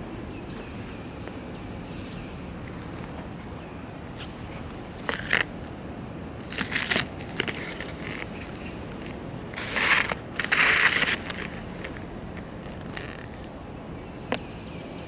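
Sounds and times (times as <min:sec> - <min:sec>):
dry leaves crunching underfoot: 0:06.4 - 0:13.6.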